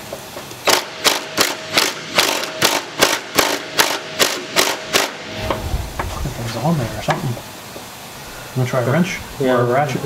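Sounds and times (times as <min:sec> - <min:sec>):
impact wrench bursts: 0:00.1 - 0:06.1.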